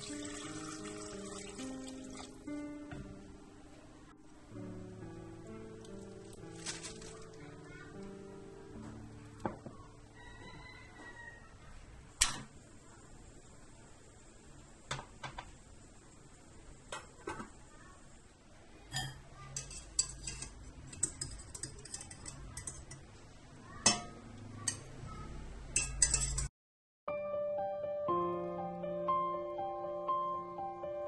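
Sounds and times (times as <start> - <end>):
strainer clinking against metal pot: 18.9 - 23.1, 23.8 - 24.9, 25.8 - 26.5.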